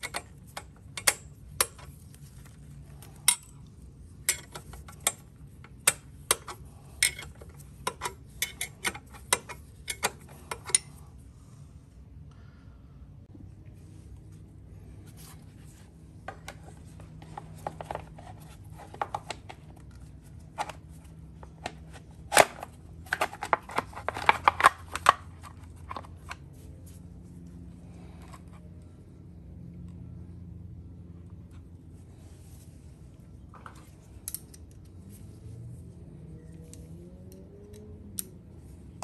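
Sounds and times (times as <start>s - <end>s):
parts clicking and knocking: 0.0s - 11.2s, 16.1s - 26.5s, 33.4s - 35.2s
steady low hum: 0.0s - 39.0s.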